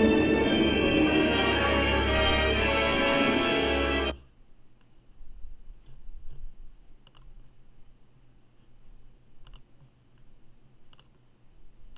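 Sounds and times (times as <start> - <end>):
low steady hum: 0.0 - 11.9
computer mouse clicks: 7.0 - 7.4, 9.4 - 10.3, 10.9 - 11.2.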